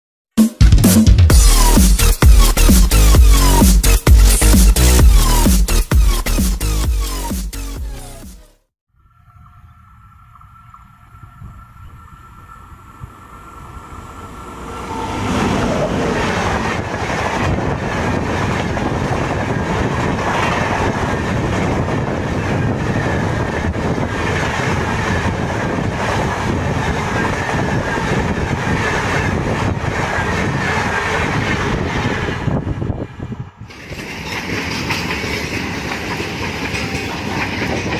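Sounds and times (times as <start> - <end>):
train rushing past: 9.7 - 37.9
clickety-clack of train wheels: 15.4 - 33.1, 33.7 - 37.9.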